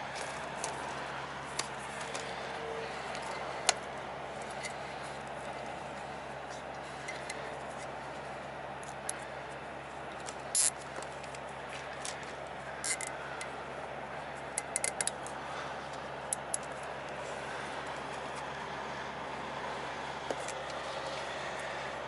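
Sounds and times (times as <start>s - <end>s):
steady background noise: 0.0s - 22.0s
clicks of wiring and zip ties: 10.2s - 11.4s, 12.8s - 13.5s, 14.6s - 15.3s.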